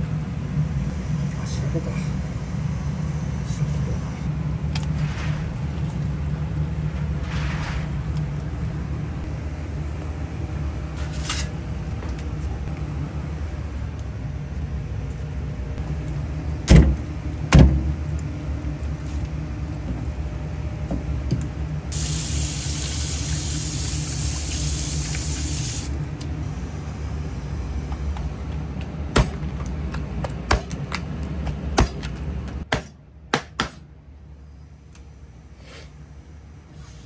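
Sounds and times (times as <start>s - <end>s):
low machine hum: 0.0s - 37.0s
hiss: 21.9s - 26.0s.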